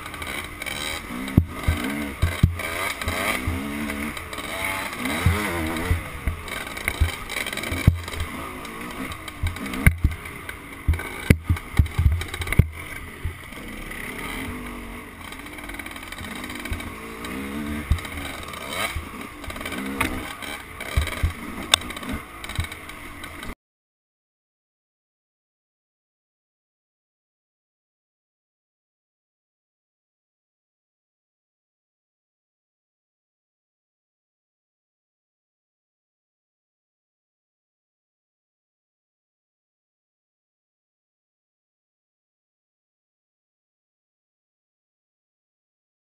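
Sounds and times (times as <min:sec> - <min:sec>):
dirt bike engine revving: 0:00.0 - 0:23.6
bike knocking over bumps: 0:00.1 - 0:13.4, 0:15.8 - 0:23.5.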